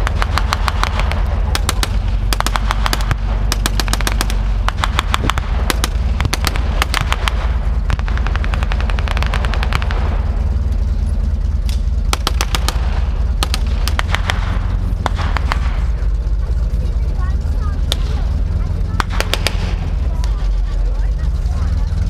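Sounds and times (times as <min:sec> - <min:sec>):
automatic gunfire bursts: 0:00.0 - 0:10.3, 0:12.1 - 0:15.9, 0:17.8 - 0:20.0
rifle shots: 0:00.0 - 0:10.8, 0:11.6 - 0:16.2, 0:17.8 - 0:20.4
idling tank engines rumbling: 0:00.0 - 0:22.0.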